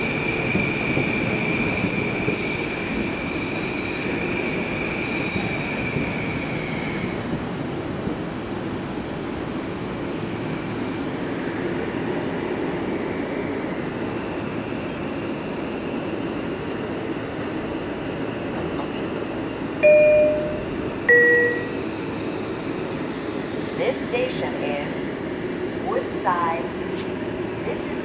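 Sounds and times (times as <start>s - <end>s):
train equipment humming: 15.2s - 28.0s
automated announcement: 19.8s - 21.8s, 23.8s - 25.0s, 25.8s - 26.7s
two-note descending chime: 19.8s - 21.8s.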